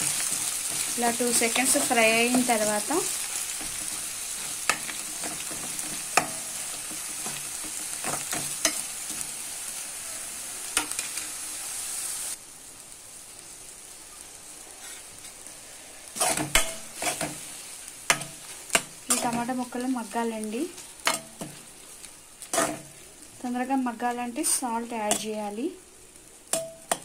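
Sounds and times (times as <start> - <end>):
steel spoon scraping a pan: 0.0 - 9.4, 14.8 - 15.4, 16.1 - 20.1, 20.8 - 23.1, 24.3 - 25.4
onions sizzling in hot oil: 0.0 - 27.0.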